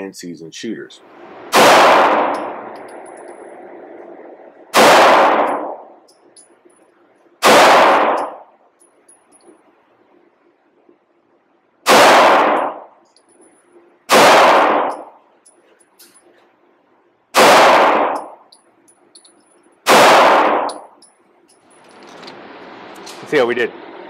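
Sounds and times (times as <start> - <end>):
faint low range noise: 0.0 - 24.0
pistol shot ringing: 1.5 - 3.5, 4.7 - 5.9, 7.4 - 8.5, 11.9 - 12.9, 14.1 - 15.2, 17.4 - 18.4, 19.8 - 20.9.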